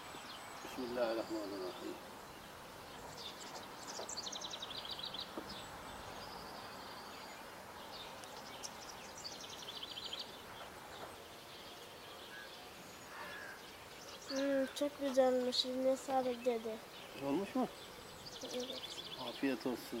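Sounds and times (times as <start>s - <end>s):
bird chirps: 0.0s - 20.0s
steady background hiss: 0.0s - 20.0s.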